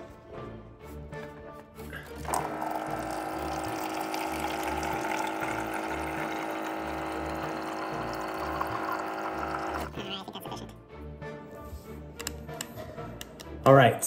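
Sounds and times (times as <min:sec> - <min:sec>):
water filling a container: 0:02.1 - 0:10.0.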